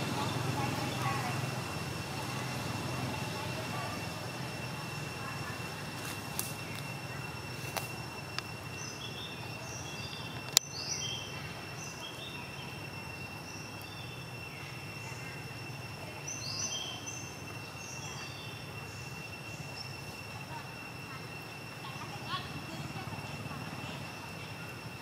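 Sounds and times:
steady high-pitched whine: 0:00.0 - 0:25.0.

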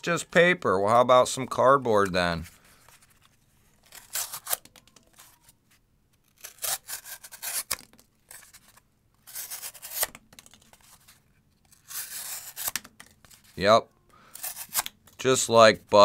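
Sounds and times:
knife slicing cardboard: 0:06.3 - 0:07.9, 0:09.3 - 0:10.1, 0:11.8 - 0:12.8.

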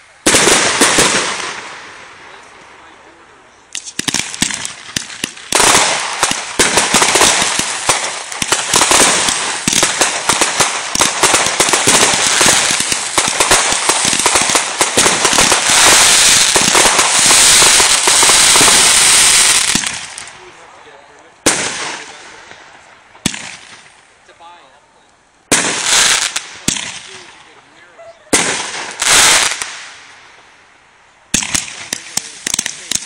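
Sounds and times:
crackling fireworks stars: 0:00.0 - 0:33.0
fireworks pops: 0:03.7 - 0:18.9, 0:31.3 - 0:33.0
rattle of fireworks launches: 0:03.7 - 0:20.4, 0:31.3 - 0:33.0.

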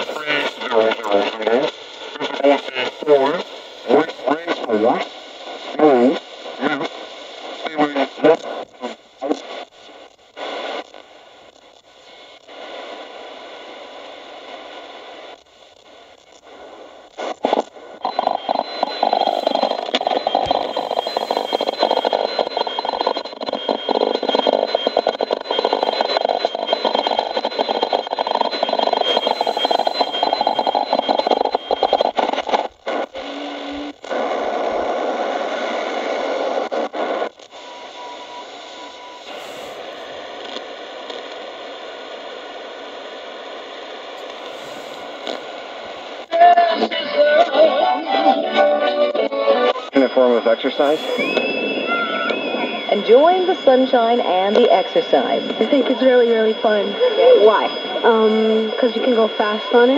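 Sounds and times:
high-pitched radio whistles: 0:00.0 - 0:01.5, 0:17.4 - 0:35.0, 0:36.9 - 0:41.3, 0:44.2 - 0:59.9
radio static hiss: 0:00.0 - 0:59.9.

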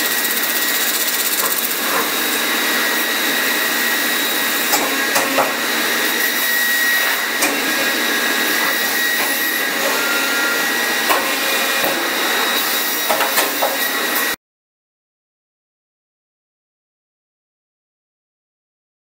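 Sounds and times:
sharp machine clicks: 0:00.0 - 0:01.8
metal spinning lathe running: 0:00.0 - 0:14.4.

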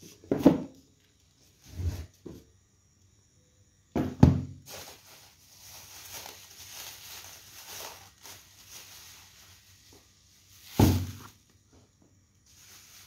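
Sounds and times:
plastic bags rustling: 0:04.6 - 0:11.5, 0:12.4 - 0:13.0.

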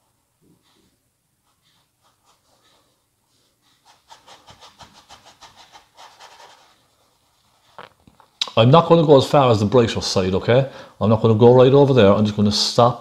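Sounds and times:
paintbrush scrubbing on canvas: 0:00.0 - 0:08.0.

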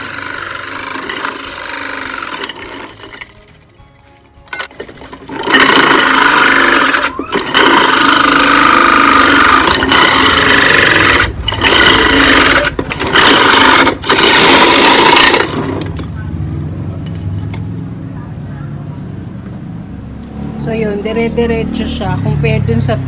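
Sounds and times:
electric ice crusher grinding ice: 0:00.0 - 0:03.3, 0:04.6 - 0:16.0.

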